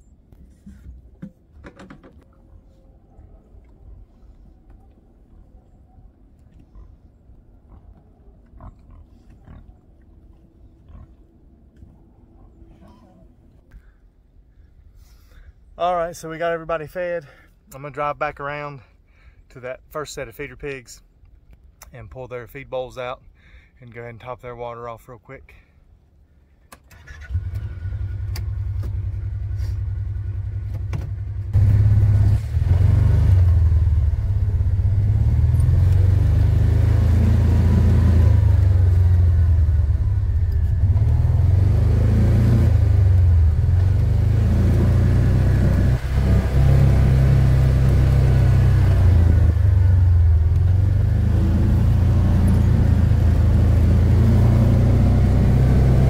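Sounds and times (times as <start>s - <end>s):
utility vehicle engine starting and driving: 26.7s - 56.0s.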